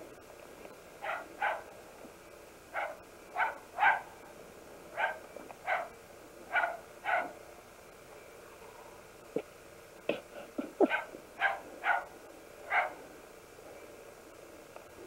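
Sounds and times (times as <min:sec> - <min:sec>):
dog barking: 0:01.0 - 0:01.7, 0:02.7 - 0:04.1, 0:05.0 - 0:07.4, 0:10.8 - 0:13.0.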